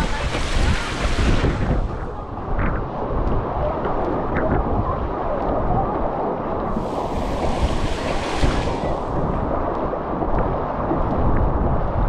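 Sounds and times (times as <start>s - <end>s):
wind buffeting microphone: 0.0s - 12.0s
hiss: 6.8s - 9.1s.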